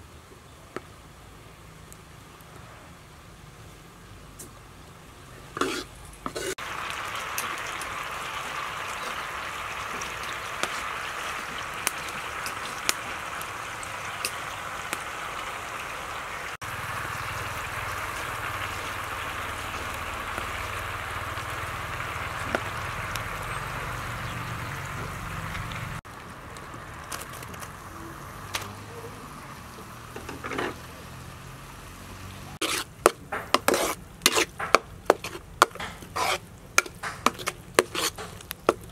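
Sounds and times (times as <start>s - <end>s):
liquid boiling and sizzling in wok: 0.8s - 38.9s
spatula scraping wok: 5.4s - 15.6s, 16.6s - 24.1s, 30.1s - 31.2s, 32.6s - 38.9s.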